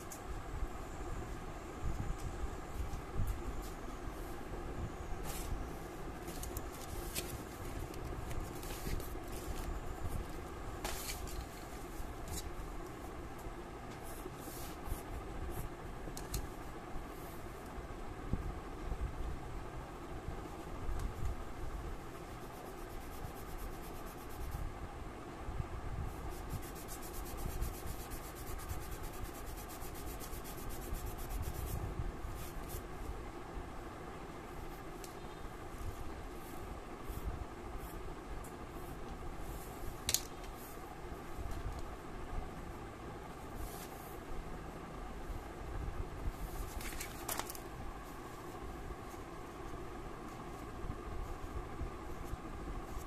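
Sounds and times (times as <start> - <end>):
paper rustling: 6.2 - 9.8, 10.8 - 12.5, 46.5 - 47.7
eraser rubbing on paper: 22.3 - 24.7, 26.1 - 32.8.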